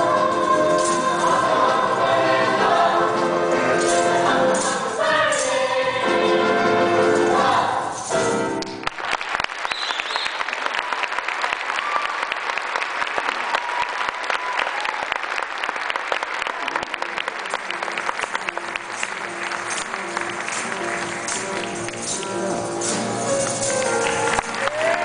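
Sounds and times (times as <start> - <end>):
audience applause and cheering: 8.6 - 25.0.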